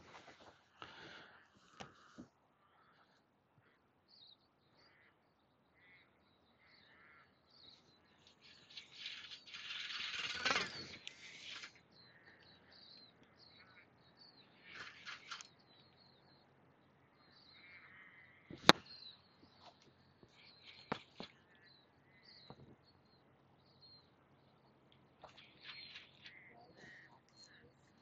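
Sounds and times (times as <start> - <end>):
birds chirping: 0.0 - 28.0
rushing rattling noise: 8.3 - 11.8.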